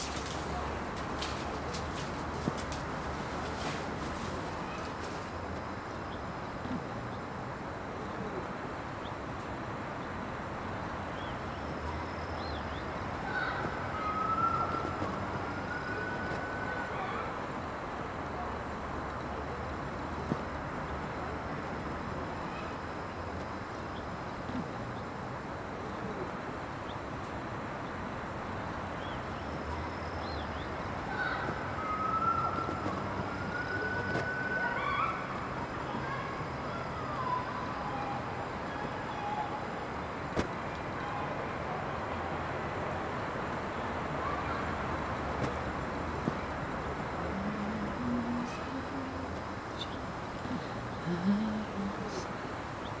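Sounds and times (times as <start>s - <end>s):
city background noise: 0.0s - 53.0s
outdoor background noise: 0.0s - 53.0s
distant siren wail: 13.2s - 17.4s, 31.0s - 39.9s.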